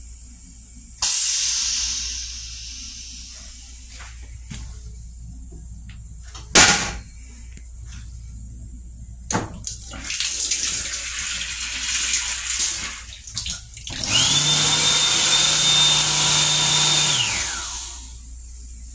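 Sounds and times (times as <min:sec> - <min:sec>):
faucet running into sink: 0:09.7 - 0:14.2
electric motor humming and whining: 0:13.9 - 0:18.2.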